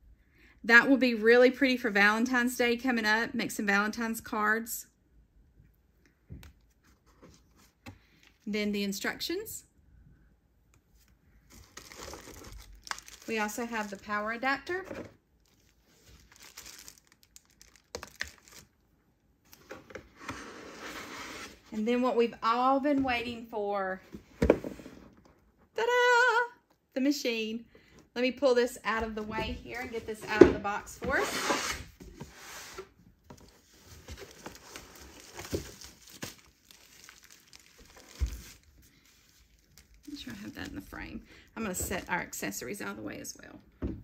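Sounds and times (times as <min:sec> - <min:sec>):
plastic bag crinkling: 0:11.6 - 0:14.4, 0:15.4 - 0:18.8, 0:34.1 - 0:41.1.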